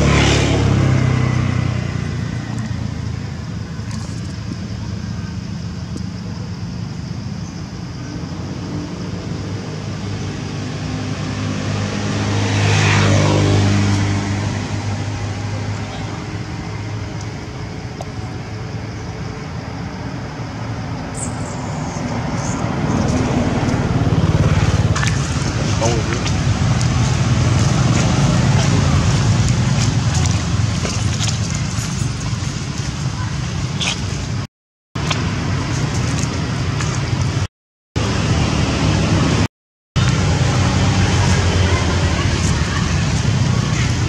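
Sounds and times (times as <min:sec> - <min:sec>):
motor engine humming: 0:21.8 - 0:44.0.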